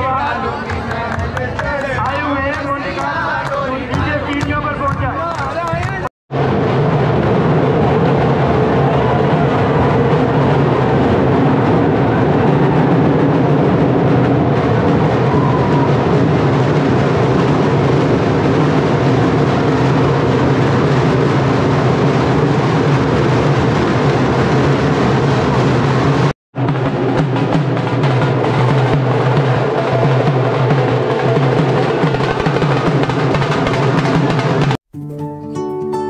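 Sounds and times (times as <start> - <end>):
crowd din: 0.0 - 34.8
drum beaten loudly: 0.0 - 34.8
soft plucked-string music: 35.0 - 36.0.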